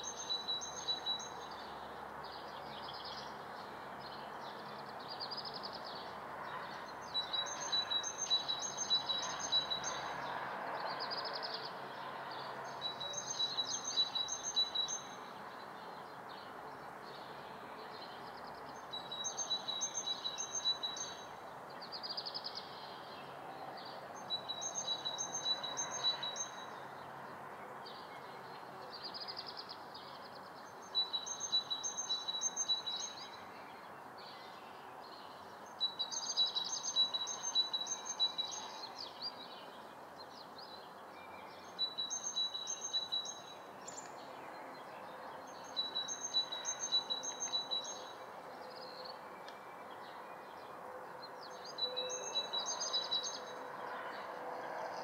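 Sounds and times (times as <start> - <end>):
bird chirps: 0.0 - 1.7, 12.7 - 15.2, 18.0 - 21.3, 24.2 - 26.8, 30.6 - 39.8, 40.4 - 44.4, 45.0 - 50.6, 51.4 - 54.0.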